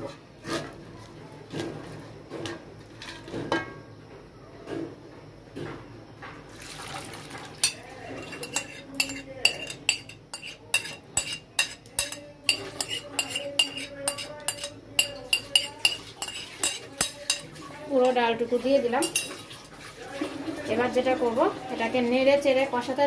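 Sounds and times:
short pour: 6.5 - 7.6
spoon clinking against a bowl: 7.6 - 18.2, 19.0 - 19.4
utensil knocking in a pot: 7.6 - 18.2
lentils scraped into pot: 8.1 - 9.8, 10.4 - 11.8, 12.5 - 14.8, 15.4 - 17.4.

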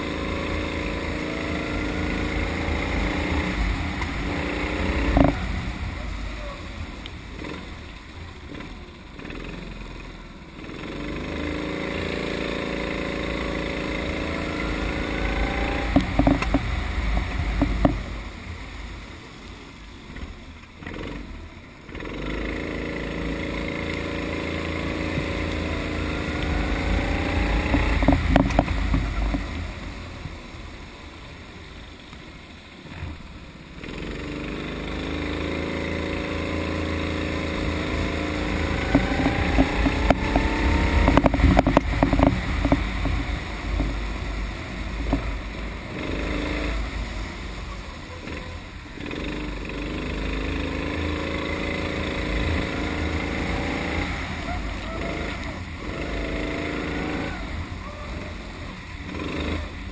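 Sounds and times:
low rumble: 0.0 - 10.6, 12.9 - 20.8, 24.4 - 33.8, 36.0 - 49.6
go-kart engine accelerating: 0.0 - 19.4, 20.1 - 59.9.

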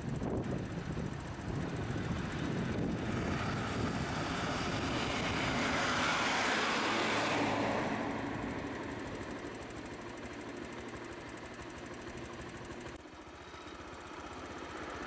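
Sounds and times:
bus driving past: 1.6 - 10.0.

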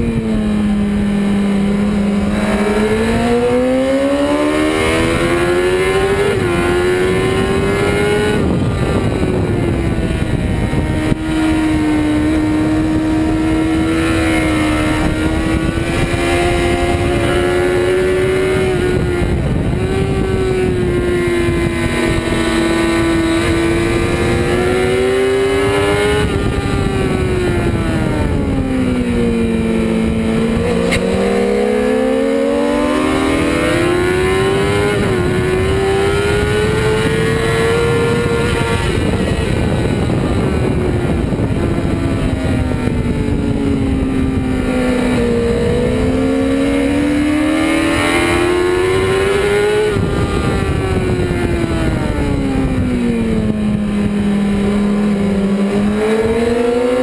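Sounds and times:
motorcycle engine revving: 0.0 - 57.0
wind rushing: 0.0 - 57.0.

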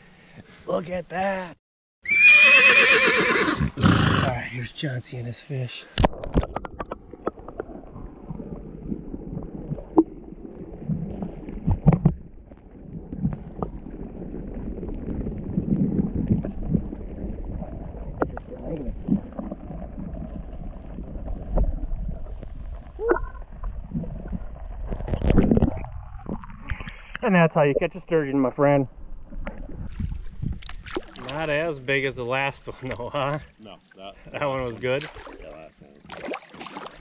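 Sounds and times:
water gurgling and lapping: 6.0 - 27.9, 29.2 - 37.0
low rumble: 7.1 - 26.8.

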